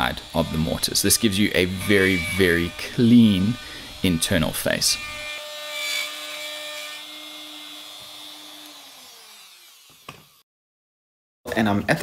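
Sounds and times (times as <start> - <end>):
router whining: 0.0 - 10.4.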